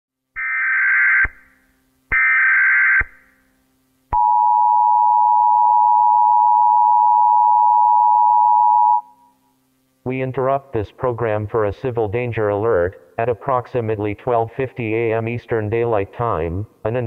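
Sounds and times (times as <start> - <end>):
faint low hum: 3.2 - 17.0
two-tone attention signal: 4.2 - 9.3.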